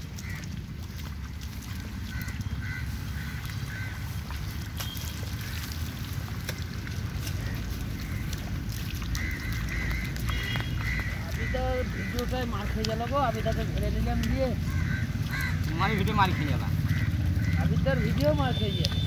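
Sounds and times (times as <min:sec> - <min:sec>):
water and mud splashing: 0:00.0 - 0:19.0.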